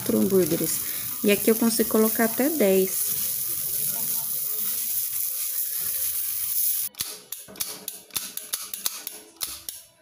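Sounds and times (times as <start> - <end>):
sausages sizzling on griddle: 0.0 - 7.0
stove lighter clicking: 6.9 - 9.8.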